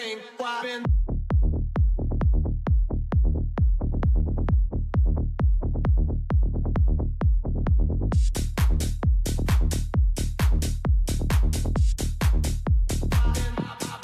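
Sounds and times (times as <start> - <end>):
deep bass: 0.9 - 14.0
heavy kick drum: 0.9 - 14.0
electronic dance music: 8.1 - 14.0.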